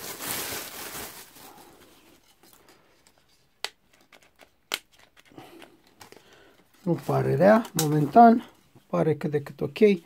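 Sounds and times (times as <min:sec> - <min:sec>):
plastic bag rustling: 0:00.0 - 0:02.6.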